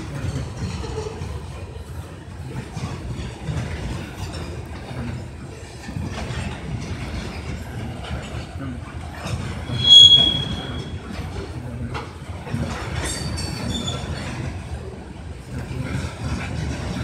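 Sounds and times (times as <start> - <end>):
freight train rumbling: 0.0 - 17.0
steel wheel squeal: 9.4 - 11.3.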